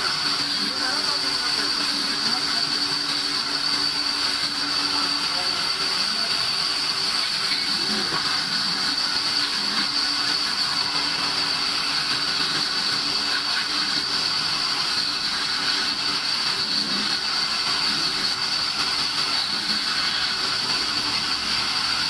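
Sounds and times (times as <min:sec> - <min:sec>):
band saw cutting log: 0:00.0 - 0:22.0.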